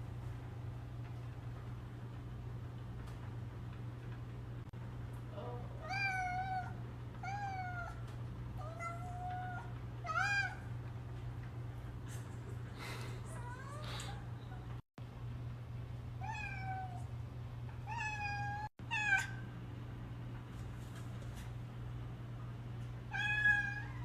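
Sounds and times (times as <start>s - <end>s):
steady low hum: 0.0s - 24.0s
cat meowing: 5.8s - 8.0s, 8.6s - 10.6s, 16.2s - 17.1s, 17.8s - 19.4s, 23.1s - 24.0s.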